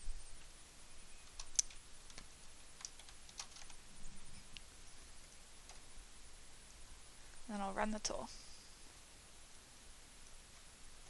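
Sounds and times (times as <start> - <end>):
typing on computer keyboard: 1.2 - 3.8.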